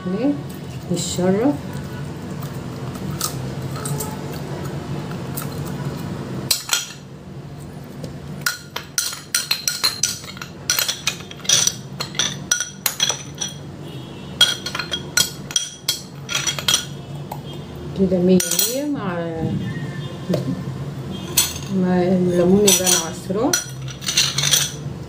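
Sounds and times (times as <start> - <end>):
metal spoon clinking on bowl: 8.4 - 13.6, 14.4 - 17.0, 18.4 - 18.9, 21.3 - 21.8, 22.5 - 24.8.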